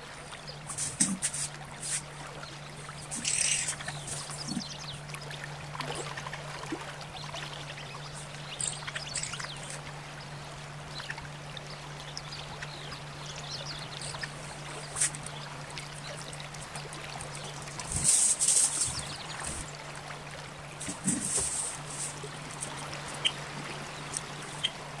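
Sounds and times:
low hum: 0.0s - 25.0s
scratchy rustles: 0.7s - 2.1s, 17.8s - 19.7s, 20.8s - 22.8s.

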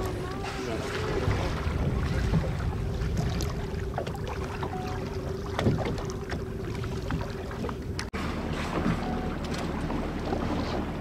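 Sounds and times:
wind on microphone: 0.0s - 7.7s
water lapping against boat: 0.0s - 11.0s.

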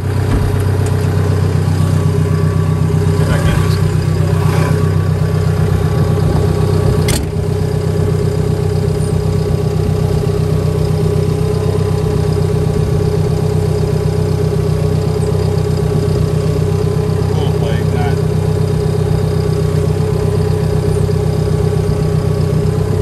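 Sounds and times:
cab door shutting: 0.0s - 8.1s
diesel engine idling: 0.0s - 23.0s.

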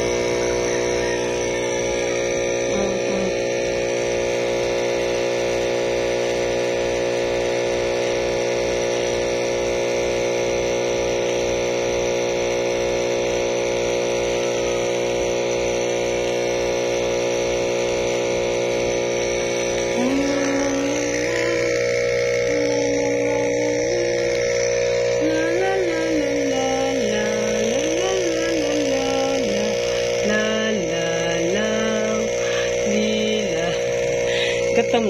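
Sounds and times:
low pulse: 0.0s - 7.6s, 14.6s - 35.0s
hum of held tones: 0.0s - 35.0s.

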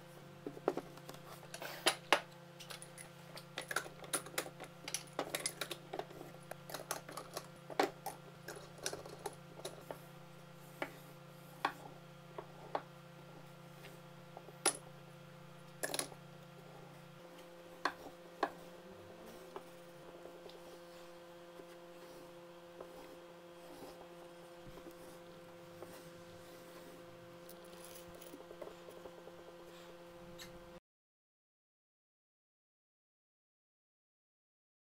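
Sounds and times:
steady hum: 0.0s - 30.8s.

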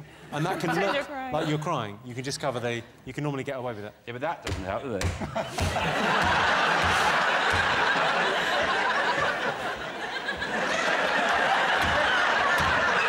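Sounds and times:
audience laughing: 5.2s - 13.0s.

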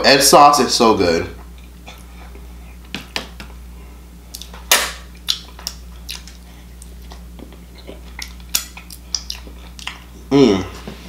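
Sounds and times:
low steady hum: 0.0s - 11.0s
mouth clicks and lip smacks: 4.3s - 4.6s, 5.2s - 10.1s.

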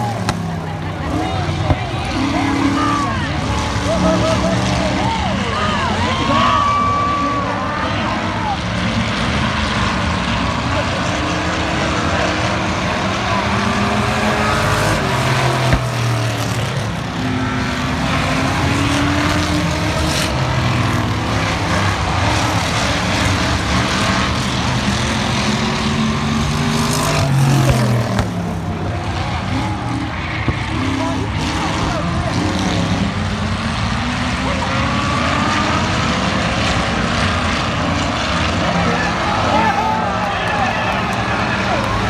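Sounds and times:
race car engines passing: 0.0s - 42.0s.

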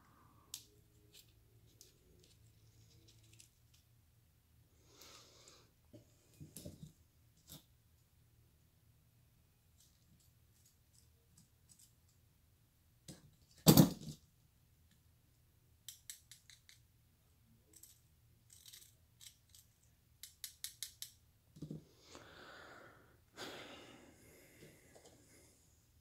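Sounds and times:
sharp clicks and snips: 15.8s - 16.8s.

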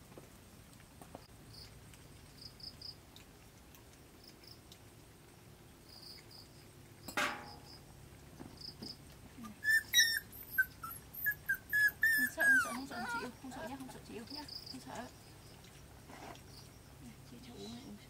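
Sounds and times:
puppy yelp: 9.4s - 13.4s
puppies squeaking: 9.4s - 15.8s.

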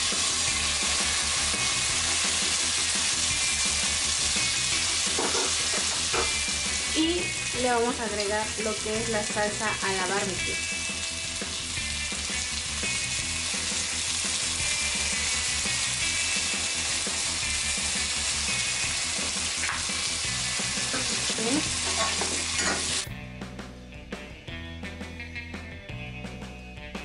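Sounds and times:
spatula turning meat: 0.0s - 7.5s, 13.4s - 23.1s
meat sizzling in oil: 0.0s - 23.1s
music: 0.0s - 27.0s.

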